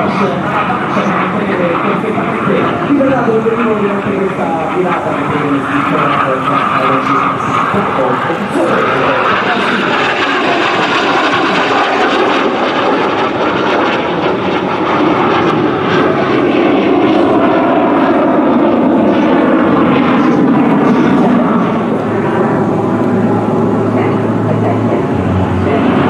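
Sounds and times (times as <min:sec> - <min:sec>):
jet engine rushing: 0:00.0 - 0:26.0.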